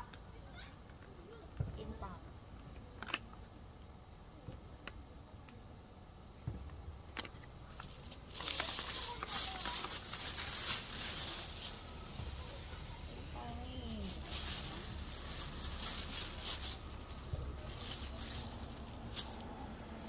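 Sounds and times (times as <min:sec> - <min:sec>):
fabric rustling on microphone: 0:07.8 - 0:12.8, 0:13.7 - 0:19.4.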